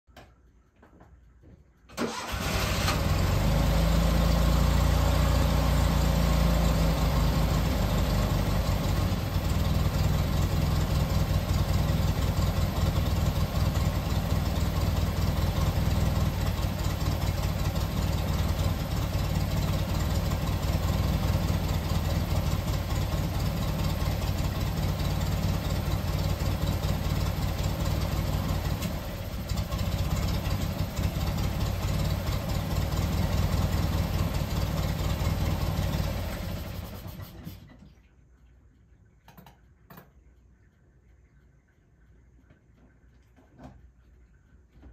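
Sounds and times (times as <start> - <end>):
car engine idling: 2.0 - 37.3.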